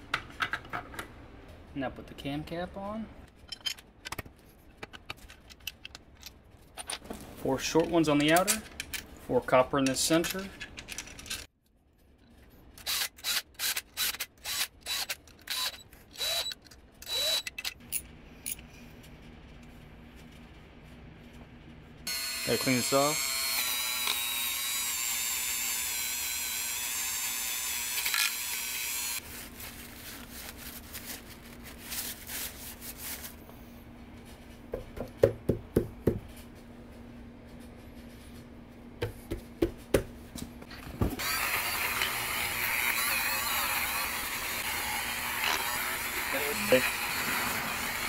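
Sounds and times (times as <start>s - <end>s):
rotary tool whining: 12.8s - 17.8s, 22.1s - 29.2s, 41.2s - 48.0s.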